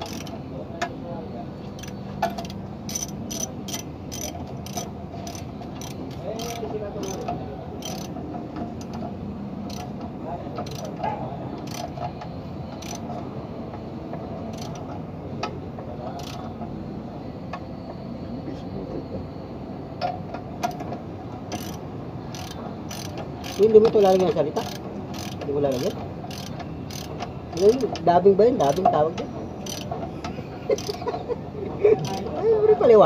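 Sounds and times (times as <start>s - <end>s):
ratchet wrench clicking: 0.0s - 0.4s, 1.8s - 8.2s, 9.7s - 9.9s, 10.6s - 11.0s, 11.6s - 12.0s, 12.8s - 13.0s, 14.5s - 14.9s, 16.2s - 16.5s, 21.5s - 28.0s, 28.6s - 29.0s, 29.6s - 29.9s, 30.7s - 31.0s, 32.0s - 32.3s
steady background hum: 0.0s - 33.0s.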